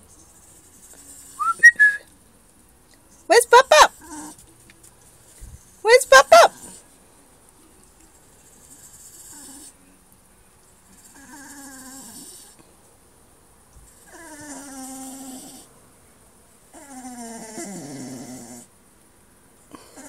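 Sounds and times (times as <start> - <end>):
dog whining: 11.0 - 12.4, 13.9 - 15.7, 16.7 - 18.7.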